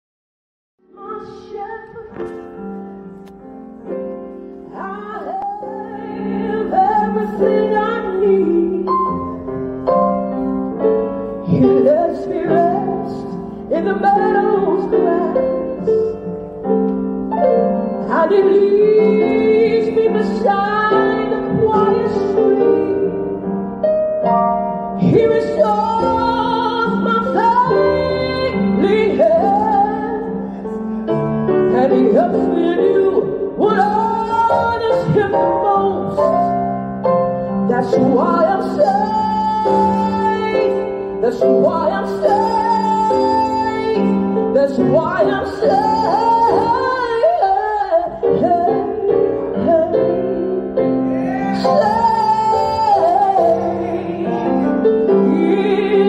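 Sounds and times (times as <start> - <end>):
piano: 0.8 - 56.0
person singing slow song: 48.2 - 56.0.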